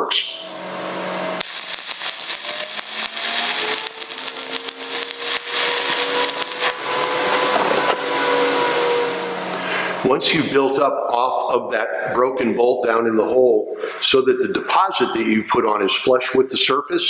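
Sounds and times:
welding arc crackling: 0:01.4 - 0:09.3.

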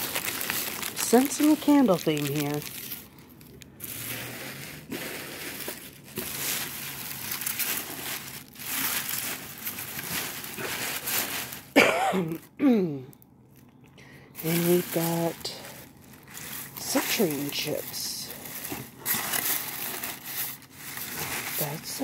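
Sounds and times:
bubble wrap rustling and crinkling: 0:00.0 - 0:12.5, 0:13.6 - 0:22.0.

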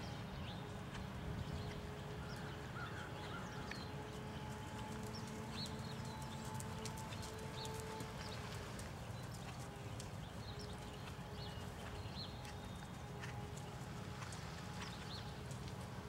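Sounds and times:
horse hoofbeats in soft sand: 0:03.7 - 0:16.0.

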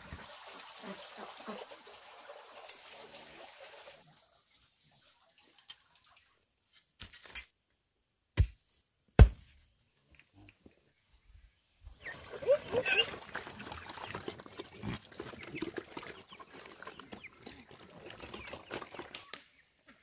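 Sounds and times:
digging tool striking stony earth: 0:08.4 - 0:08.6, 0:09.2 - 0:09.5.

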